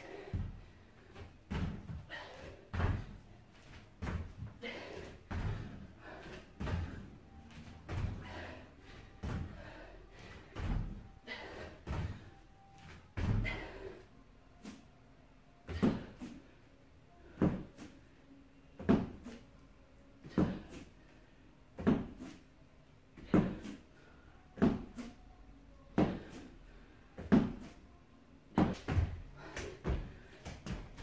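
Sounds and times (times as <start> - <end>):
dull thuds on rubber gym mat: 1.4 - 4.5, 18.8 - 19.4, 21.8 - 22.3, 23.2 - 23.8, 25.9 - 26.4, 27.2 - 27.7, 28.5 - 31.0.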